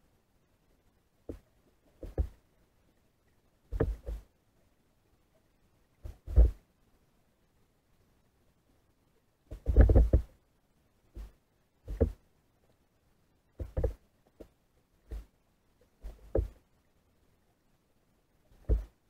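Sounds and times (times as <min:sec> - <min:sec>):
short dull knocks underwater: 0:01.3 - 0:02.4, 0:16.0 - 0:16.6, 0:18.6 - 0:19.0.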